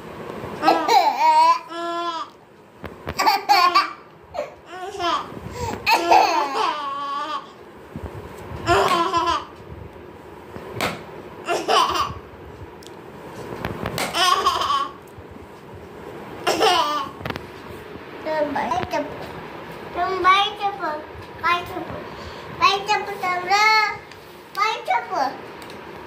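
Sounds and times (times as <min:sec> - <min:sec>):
children laughing and babbling: 0:00.6 - 0:02.4, 0:03.1 - 0:07.6, 0:08.6 - 0:09.6, 0:11.4 - 0:12.3, 0:14.0 - 0:15.0, 0:16.4 - 0:17.2.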